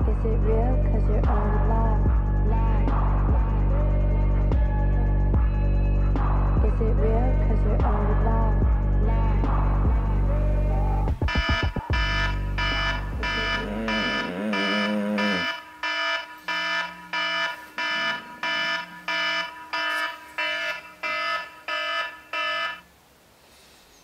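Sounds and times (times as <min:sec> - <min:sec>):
music with deep bass: 0:00.0 - 0:15.5
electronic alarm beeping rapidly: 0:11.2 - 0:22.8.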